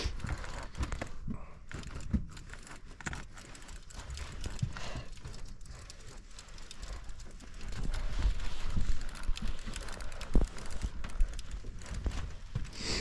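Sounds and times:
fishing reel clicking: 2.5 - 11.9.

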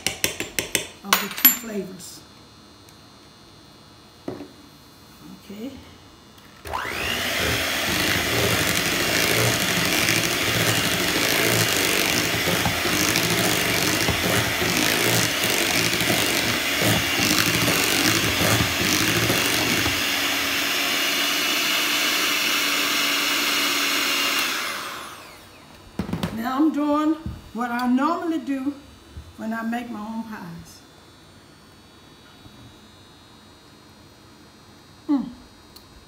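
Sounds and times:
electric hand mixer whirring: 6.5 - 25.7.

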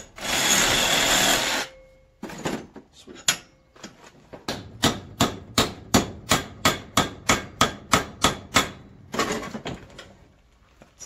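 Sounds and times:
hammer striking: 4.4 - 9.2.

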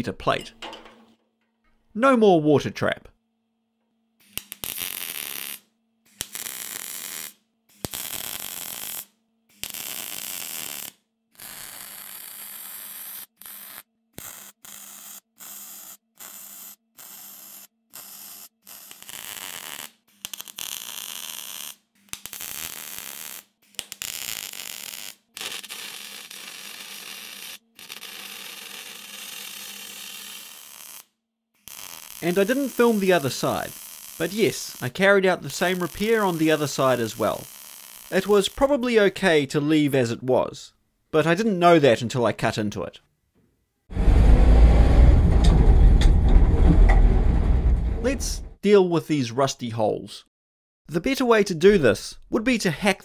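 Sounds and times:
welder crackling: 4.2 - 11.0, 18.0 - 38.8.

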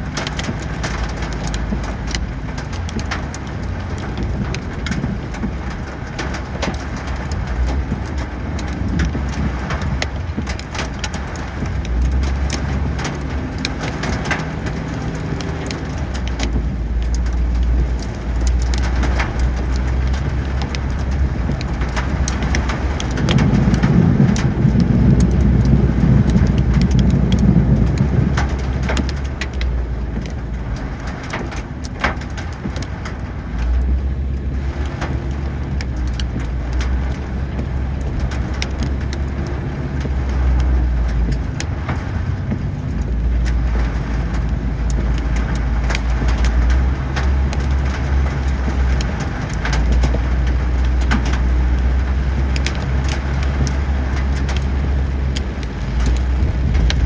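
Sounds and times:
car on wet road: 0.0 - 57.0
light ticks of rain: 0.0 - 57.0.

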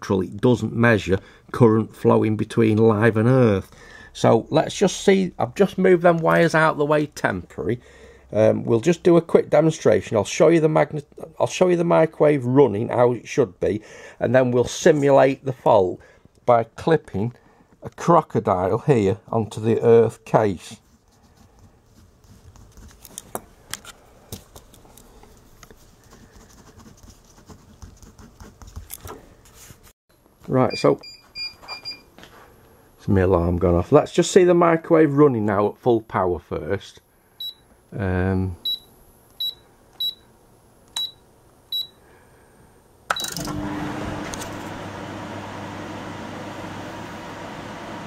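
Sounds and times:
paper handling: 21.4 - 27.2
pen scratching on paper: 26.0 - 28.8
microwave keypad beeping: 38.7 - 40.2, 41.0 - 42.0, 43.1 - 43.5
microwave humming with fan noise: 43.1 - 48.0.

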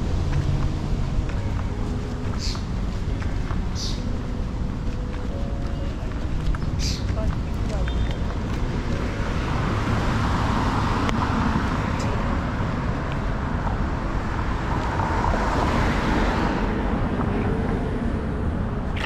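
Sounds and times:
car tyre and engine noise: 6.0 - 19.0
car passing by: 8.6 - 13.0, 14.2 - 19.0.

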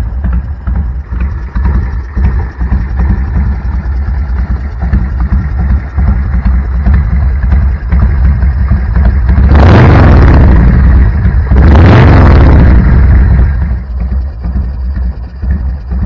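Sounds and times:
motorcycle engine idling and revving: 0.0 - 16.0.

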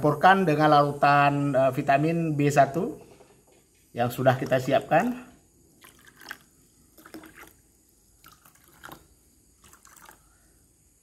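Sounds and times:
water pouring into plastic cups: 4.1 - 10.3.

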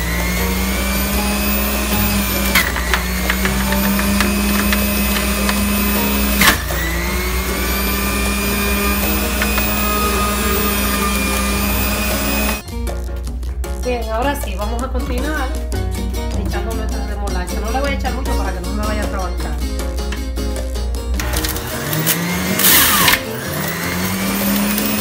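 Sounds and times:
juicer motor whining: 0.0 - 12.6, 21.2 - 25.0.

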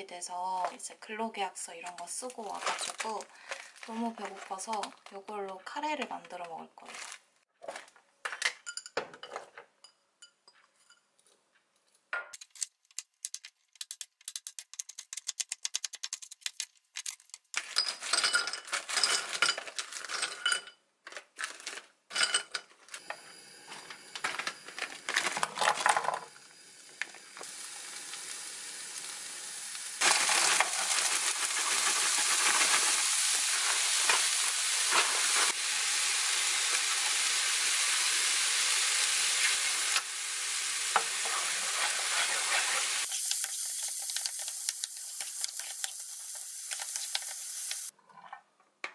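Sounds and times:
kitchen clatter: 12.3 - 20.8
food sizzling in a frying pan: 25.9 - 47.9.

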